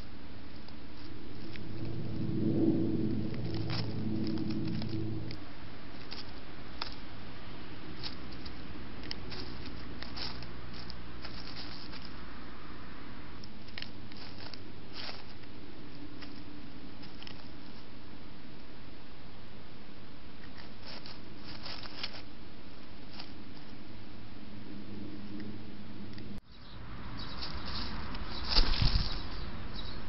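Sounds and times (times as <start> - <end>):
mice rustling in dry leaves: 0.0 - 18.3, 20.3 - 24.0, 27.2 - 29.9
steady hiss and hum: 0.0 - 30.0
mice gnawing clicks: 8.0 - 12.2.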